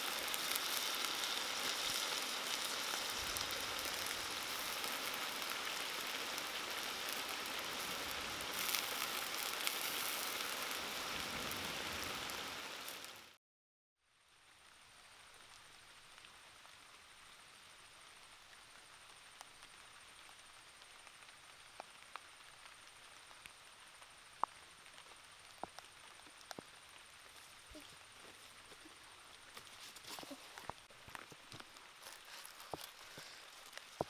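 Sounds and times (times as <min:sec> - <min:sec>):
soft steady hiss: 0:00.0 - 0:13.4, 0:14.0 - 0:34.0
rustles and knocks among leaves: 0:27.2 - 0:34.0.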